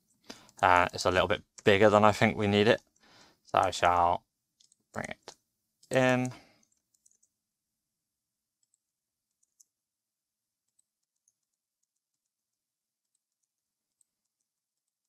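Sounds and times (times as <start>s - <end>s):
mouse and keyboard clicks: 4.6s - 7.3s.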